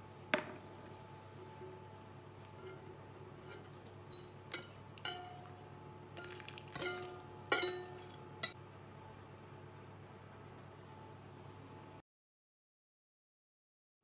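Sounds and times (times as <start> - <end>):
bowl scraping: 1.4 - 8.6
metal bowl ringing: 2.5 - 8.6
whisk clinking against metal bowl: 3.5 - 8.6.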